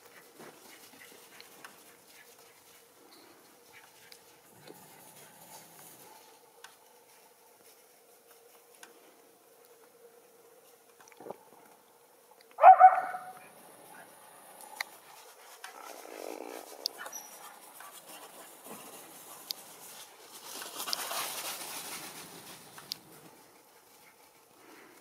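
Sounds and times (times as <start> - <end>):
dog barking: 12.6 - 13.5
soft rustling: 13.8 - 25.0.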